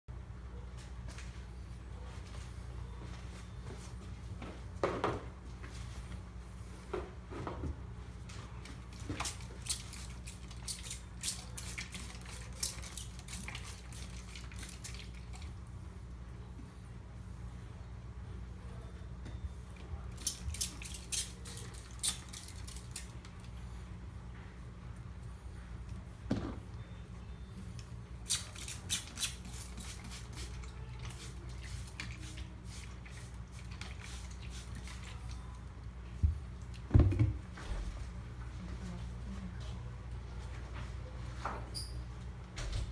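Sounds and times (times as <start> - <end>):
steady low hum: 0.1 - 42.9
spray bottle squirts: 28.2 - 35.0.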